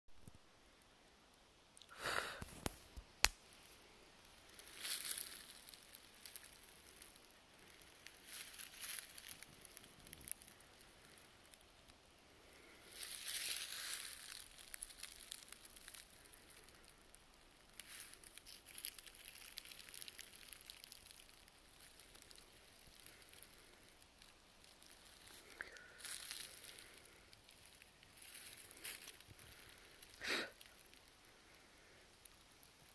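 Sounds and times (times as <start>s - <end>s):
footsteps in dry leaves: 4.5s - 10.5s, 12.9s - 16.7s, 17.8s - 30.9s.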